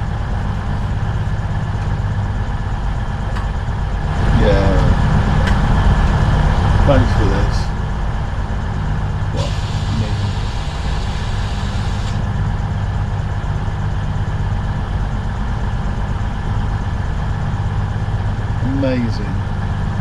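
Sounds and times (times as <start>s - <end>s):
train engine idling: 0.0s - 20.0s
hiss: 9.4s - 12.2s.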